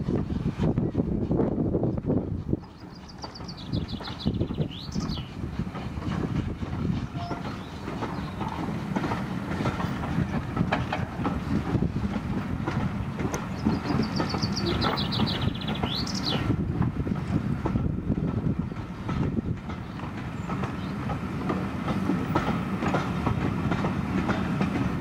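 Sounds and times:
train wheels rumbling on track: 0.0s - 25.0s
songbird singing: 2.6s - 5.5s, 7.1s - 9.0s, 13.3s - 16.6s, 19.7s - 21.6s.

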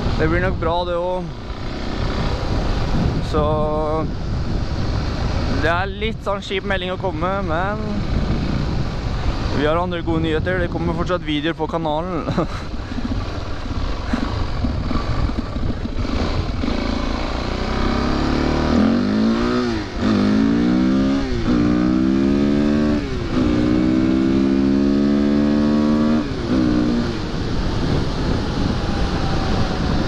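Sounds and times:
wind noise on microphone: 0.0s - 30.0s
dirt bike engine accelerating: 11.8s - 30.0s.

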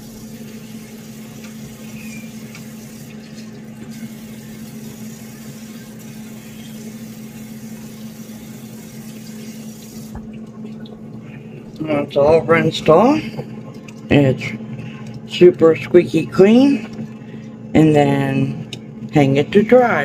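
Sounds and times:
tap water running into sink: 0.0s - 11.2s.

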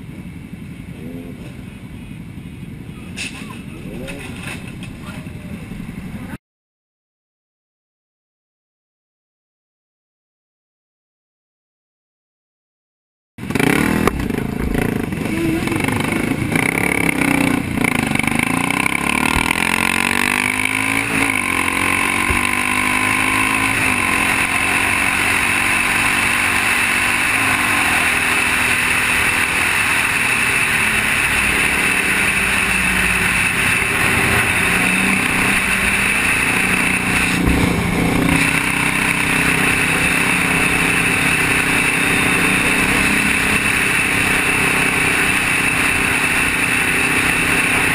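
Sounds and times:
motorcycle engine accelerating: 13.4s - 47.9s.

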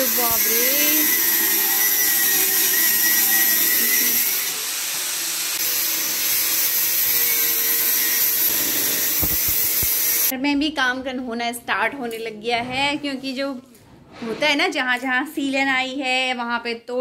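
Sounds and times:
angle grinder cutting: 0.0s - 10.3s.

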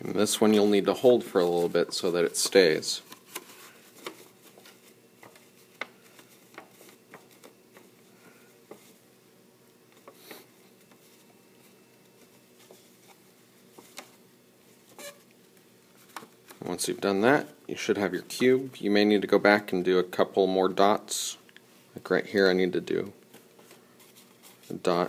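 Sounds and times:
paper tapping and rustling: 1.8s - 8.0s.

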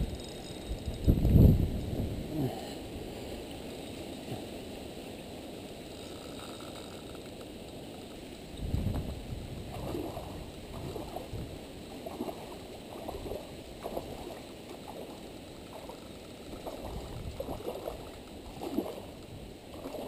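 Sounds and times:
fish splashing and thrashing in water: 8.9s - 20.0s.

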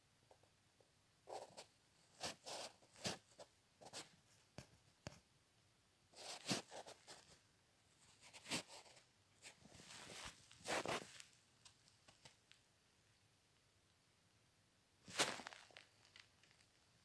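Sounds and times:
pencil scratching on paper: 6.2s - 7.3s.

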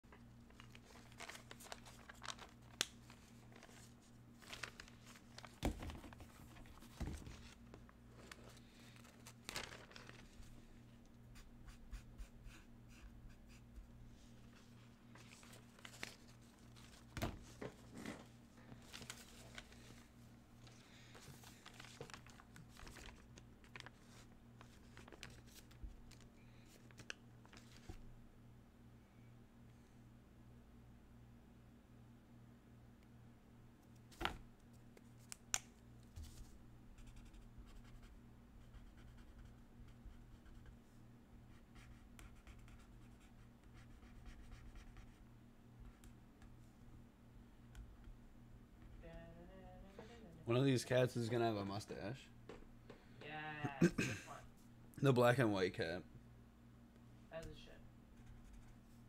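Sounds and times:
low steady hum: 0.0s - 59.0s
paper sheets rustling: 0.5s - 10.6s, 14.5s - 26.2s.

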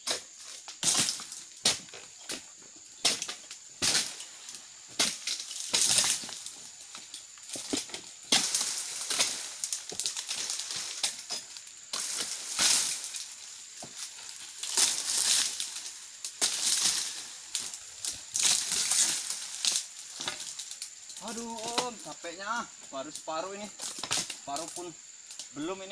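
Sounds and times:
fronds crunching and rustling: 0.0s - 25.9s
blade knocking on palm fronds: 3.0s - 4.3s, 7.5s - 14.0s, 14.6s - 22.1s.

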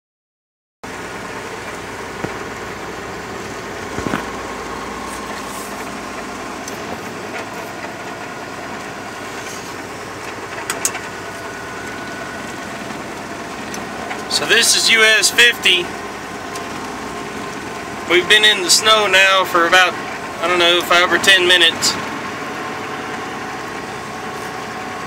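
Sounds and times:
truck engine drone: 0.8s - 25.0s
tyre noise: 3.8s - 4.4s.

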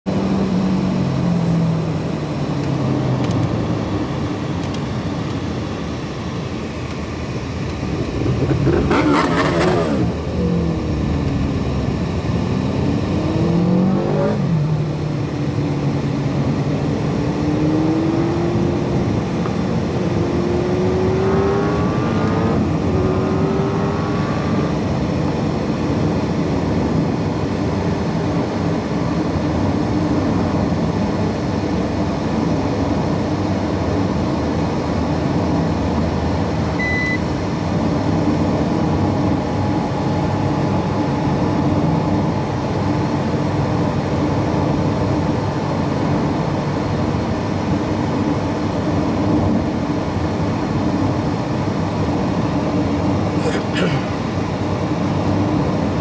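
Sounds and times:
car engine: 0.0s - 56.0s
tyre and road noise: 0.1s - 56.0s
motorcycle overtaking: 7.7s - 25.2s.

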